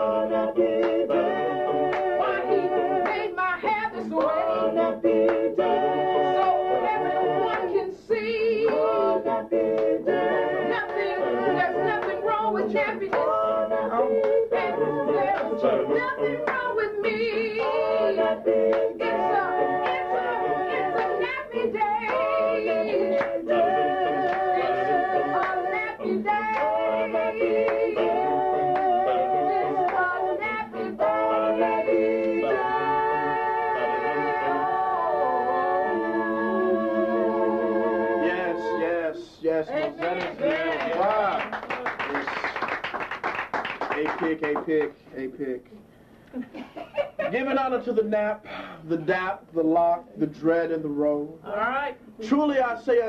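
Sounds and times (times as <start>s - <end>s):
group of voices singing a cappella: 0.0s - 43.5s
hand claps: 0.8s - 1.0s, 1.9s - 2.1s, 3.0s - 3.3s, 4.2s - 4.4s, 8.6s - 8.8s, 13.1s - 13.3s, 16.4s - 16.7s, 22.0s - 22.3s, 23.2s - 23.4s, 39.8s - 44.9s.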